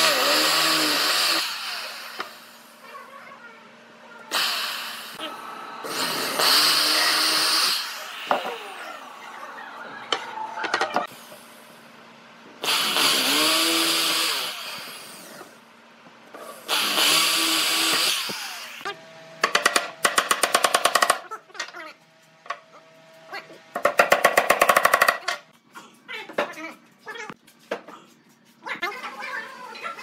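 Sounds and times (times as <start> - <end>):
electric drill boring wood: 0.0 - 2.7, 4.3 - 9.1, 12.6 - 15.6, 16.6 - 18.9.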